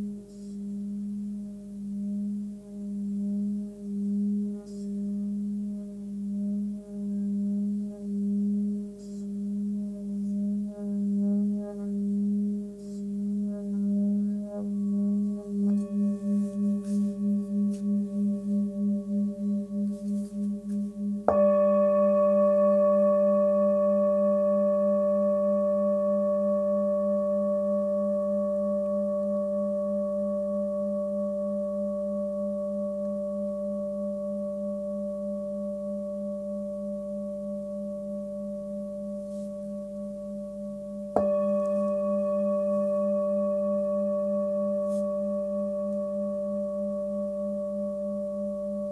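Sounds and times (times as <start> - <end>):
singing bowl struck with mallet: 10.9 - 48.9.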